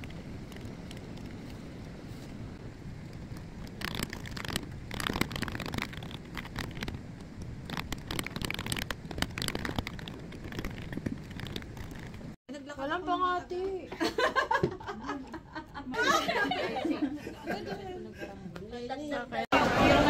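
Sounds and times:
book pages turning: 3.0s - 12.4s.

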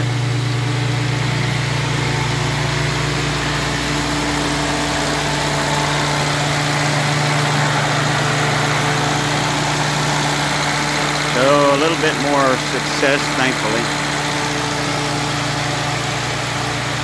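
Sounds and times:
jeep engine idling: 0.0s - 17.0s.

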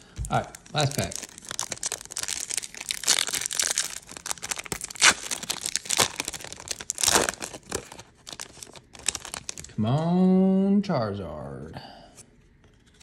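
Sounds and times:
foil wrapper crinkling: 0.2s - 9.8s.

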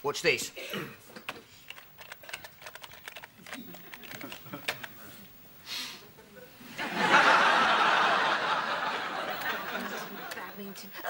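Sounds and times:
studio audience laughing: 6.3s - 11.0s.

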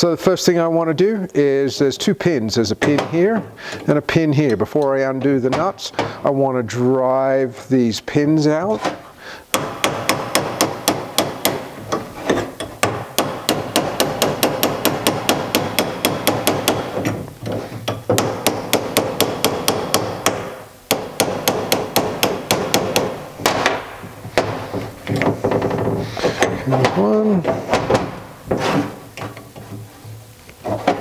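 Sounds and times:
hammer striking steel punch: 12.8s - 17.0s.

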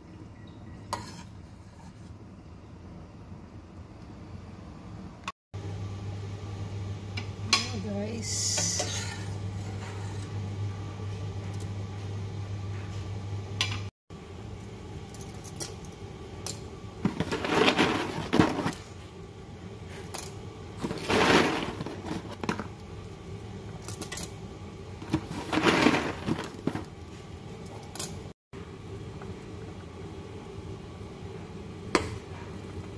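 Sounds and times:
dry pasta rattling into pot: 17.1s - 18.8s, 20.8s - 22.6s, 25.0s - 26.9s.

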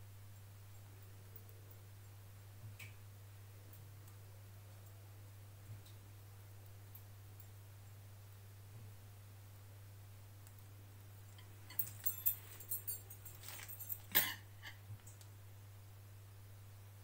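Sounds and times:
low electrical hum: 0.0s - 17.0s
clinks on glass plate: 11.4s - 14.8s.

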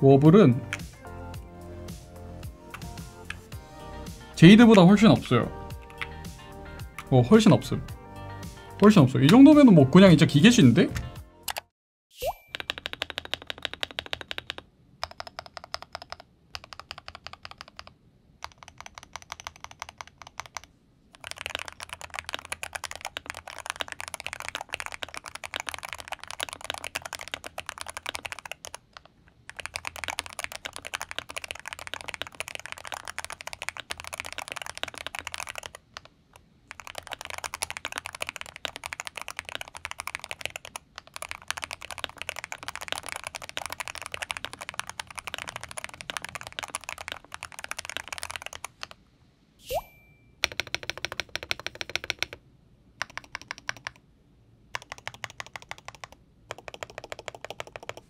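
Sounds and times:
fast typing on a keyboard: 12.5s - 36.1s, 36.7s - 49.0s, 50.4s - 52.4s, 53.0s - 54.0s, 54.7s - 58.0s.

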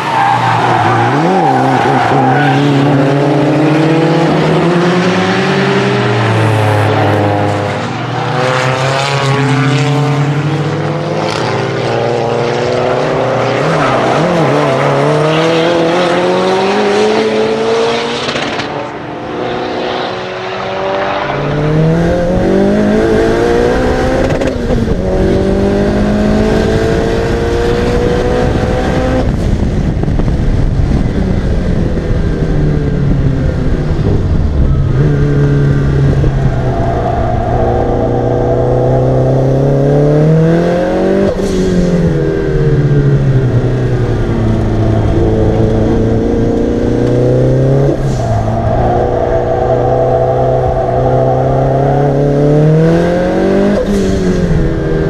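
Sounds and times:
road rumble: 0.0s - 55.0s
turbocharged engine revving: 19.6s - 29.4s, 34.9s - 55.0s.

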